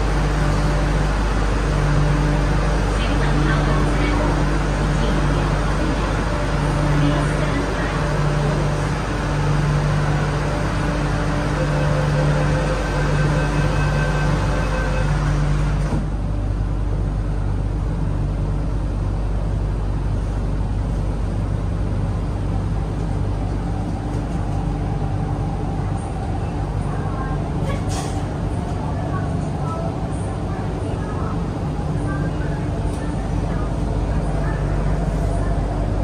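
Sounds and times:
steady machine tones: 0.0s - 16.0s
train interior rumble and hum: 0.0s - 36.0s.

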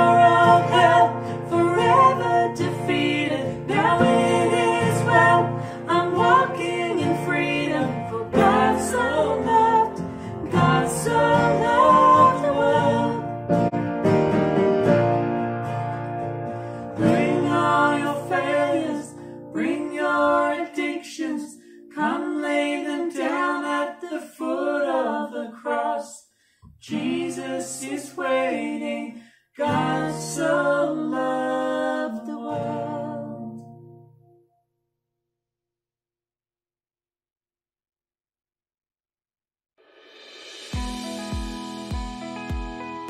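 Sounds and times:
woman singing: 0.0s - 13.4s, 17.0s - 26.2s, 26.8s - 33.7s
acoustic guitar chords: 0.0s - 20.6s, 31.5s - 34.5s, 40.8s - 43.0s.

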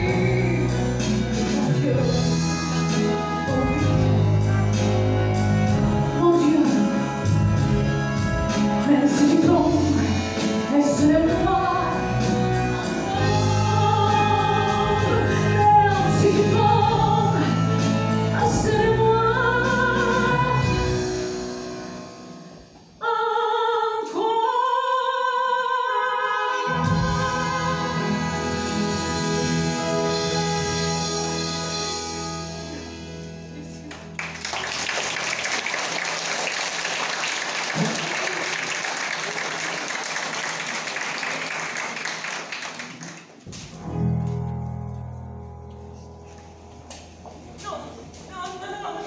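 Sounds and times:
live band with steady beat: 0.0s - 23.0s, 26.7s - 34.3s
woman singing: 6.1s - 7.2s, 8.8s - 21.2s, 23.0s - 32.8s
group of voices singing: 26.3s - 29.6s.

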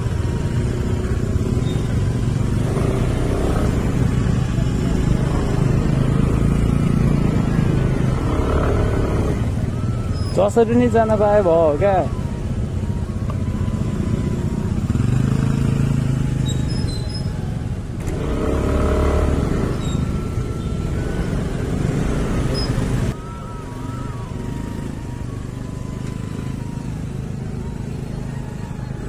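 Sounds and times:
motor scooter engine running: 12.1s - 28.9s.

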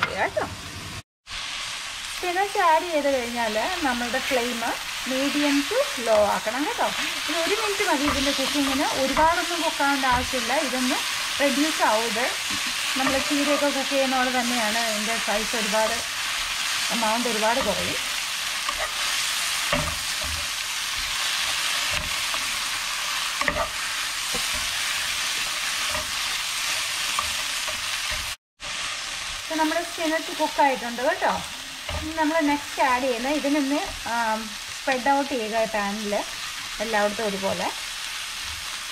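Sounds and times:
vegetables sizzling in oil: 0.1s - 38.9s
spatula scraping a pan: 12.4s - 13.9s, 17.5s - 29.4s.

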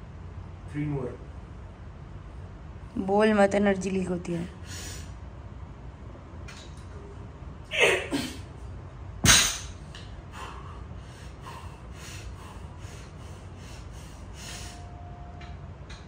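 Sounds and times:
quick heavy breathing: 10.3s - 14.8s.

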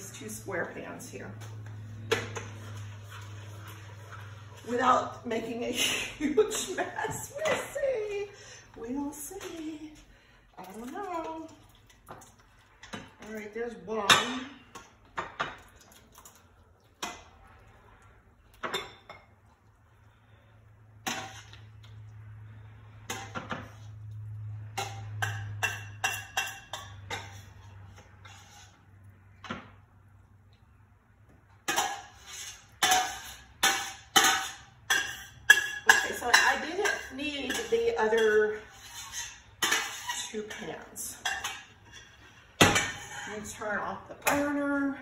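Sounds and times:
spoon scraping and knocking pan: 1.4s - 5.6s, 21.0s - 21.8s, 23.0s - 28.8s, 31.6s - 44.6s.

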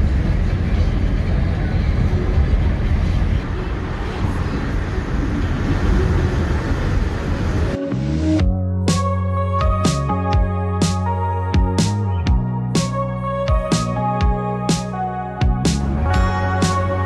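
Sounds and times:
low rumbling vehicle noise: 0.0s - 17.0s
music: 7.8s - 17.0s.

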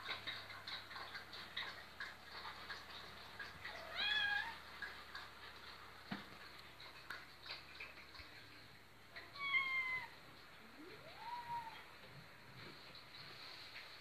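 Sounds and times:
kitten meowing: 9.4s - 10.1s, 11.0s - 11.8s.

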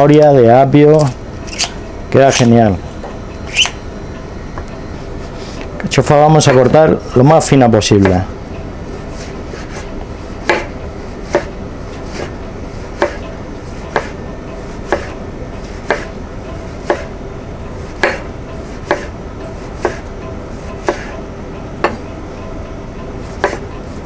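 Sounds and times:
knife slicing artichoke: 9.1s - 14.2s, 14.8s - 16.1s, 17.9s - 21.1s, 23.2s - 24.0s.

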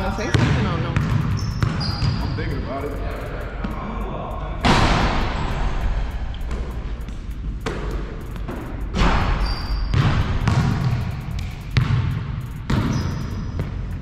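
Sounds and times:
basketball bouncing on hard floor: 0.1s - 2.5s, 6.5s - 14.0s
high squeaks: 1.0s - 4.6s, 5.3s - 14.0s.

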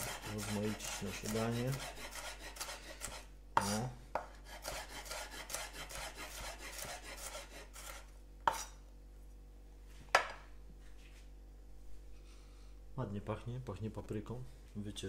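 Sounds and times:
knife slicing on wooden board: 0.0s - 8.8s.

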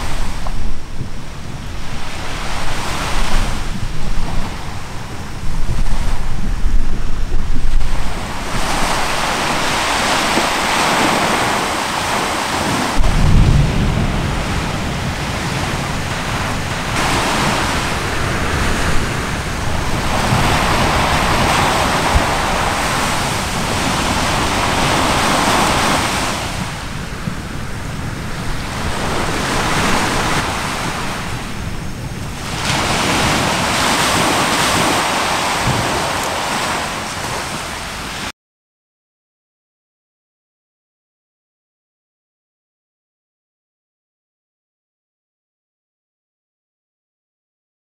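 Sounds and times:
sea waves washing onto shore: 0.0s - 38.3s
wind on microphone: 0.0s - 38.3s.

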